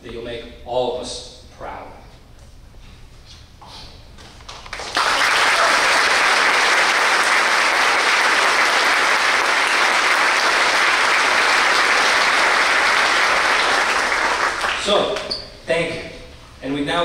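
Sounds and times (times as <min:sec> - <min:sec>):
audience applauding: 0:04.5 - 0:15.3.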